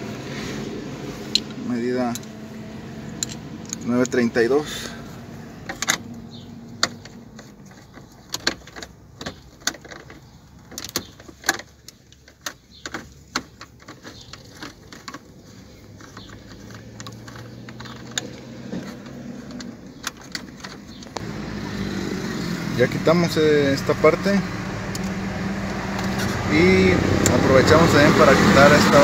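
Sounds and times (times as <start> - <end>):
socket wrench clicking and rattling: 1.2 - 2.4, 3.0 - 4.4, 5.6 - 21.2.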